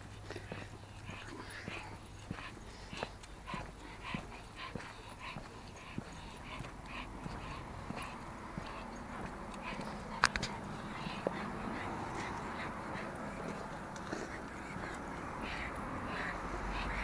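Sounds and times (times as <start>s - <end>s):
dog panting: 0.0s - 17.0s
light clicks and taps: 8.6s - 11.4s.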